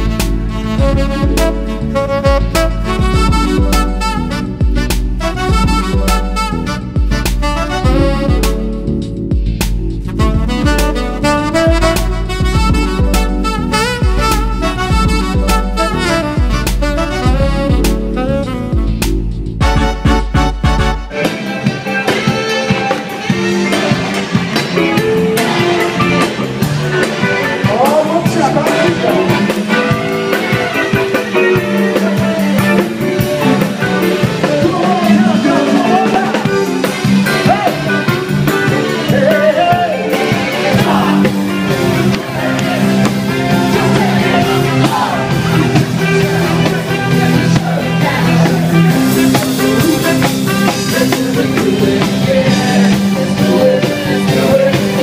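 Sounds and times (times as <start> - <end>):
bass: 0.0 - 55.0
drum kit: 0.0 - 55.0
electric guitar: 0.0 - 55.0
horns: 0.0 - 55.0
person singing: 25.0 - 38.1, 38.8 - 55.0.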